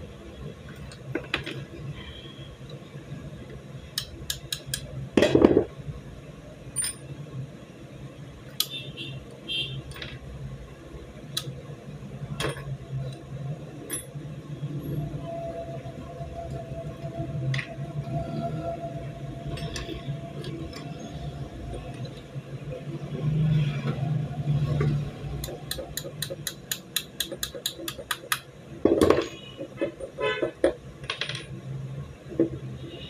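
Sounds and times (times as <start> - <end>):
metal pistol parts clicking: 25.4 - 28.5.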